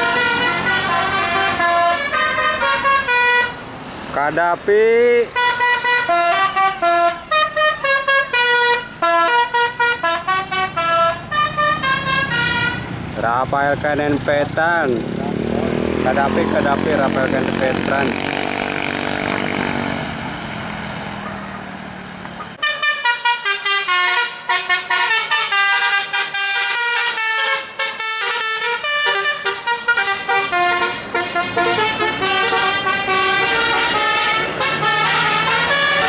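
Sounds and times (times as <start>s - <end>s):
bus horn playing melody: 0.0s - 3.8s, 5.3s - 13.0s, 22.6s - 36.0s
road traffic and engine noise: 0.0s - 36.0s.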